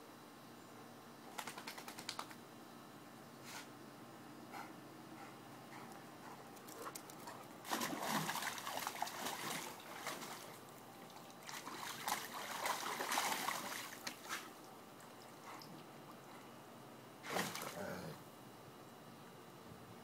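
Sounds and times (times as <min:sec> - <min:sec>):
dog splashing in water: 0:07.2 - 0:14.6, 0:17.2 - 0:17.8.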